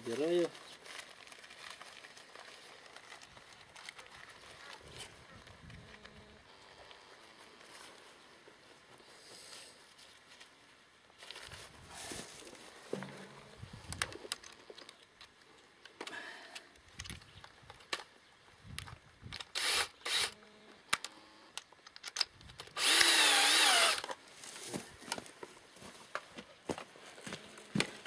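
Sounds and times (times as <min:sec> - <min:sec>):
cordless screwdriver running: 0:19.5 - 0:20.4, 0:22.7 - 0:24.1.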